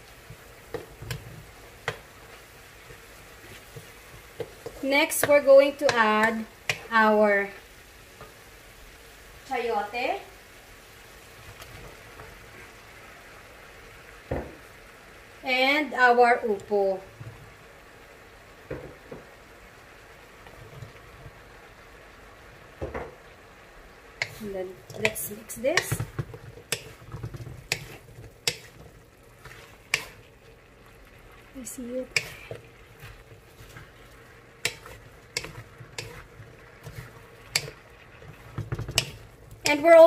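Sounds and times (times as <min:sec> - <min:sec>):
vegetables sauteing in a wok: 0:00.0 - 0:40.0
spatula knocking against pan: 0:24.2 - 0:28.8, 0:32.1 - 0:32.4, 0:34.6 - 0:36.2, 0:36.9 - 0:39.8.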